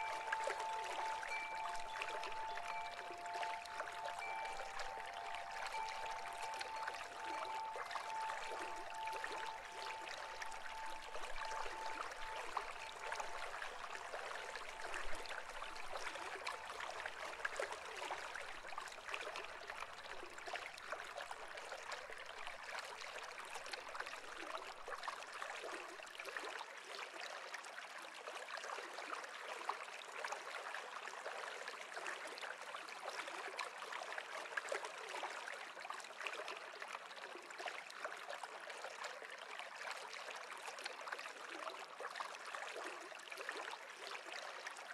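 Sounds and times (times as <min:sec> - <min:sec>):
faint high tone: 0:00.0 - 0:16.8
stream babbling: 0:00.0 - 0:26.0.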